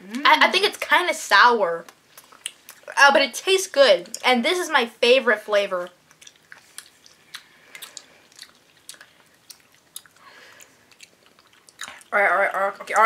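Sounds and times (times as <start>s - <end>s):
person chewing: 1.9s - 3.0s, 5.9s - 12.2s.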